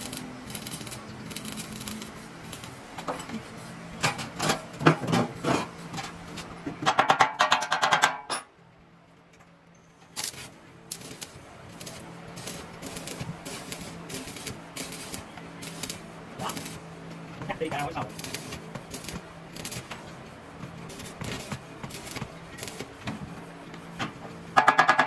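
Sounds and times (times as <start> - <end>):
knocks and taps on metal: 6.8 - 8.4, 24.6 - 25.0
steady low hum: 8.6 - 24.6.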